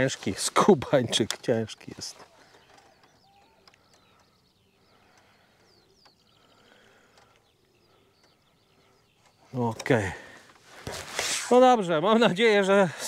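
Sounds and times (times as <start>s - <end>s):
faint bird chirps: 1.5s - 11.2s.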